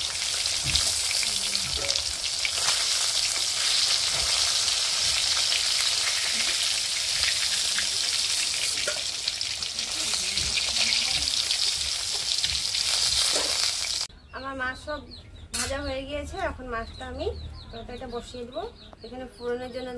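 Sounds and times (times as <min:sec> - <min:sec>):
fish sizzling in hot oil: 0:00.0 - 0:14.1.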